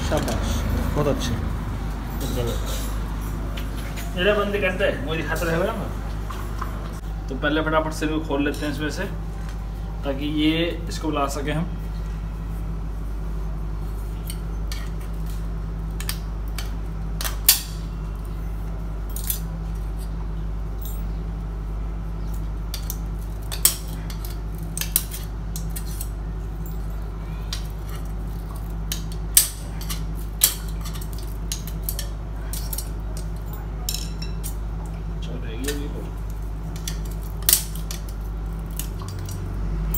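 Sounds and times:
screwdriver clinking on metal: 0:22.7 - 0:34.6.

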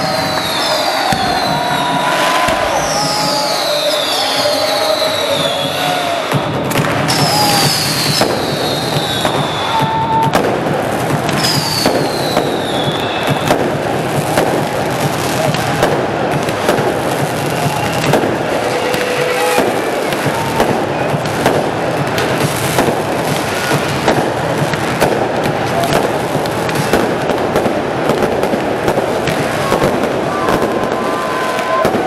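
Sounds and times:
firework whistles gliding down: 0:00.0 - 0:06.4, 0:07.1 - 0:10.4, 0:11.3 - 0:13.7
fireworks crackling and banging: 0:00.0 - 0:32.0.

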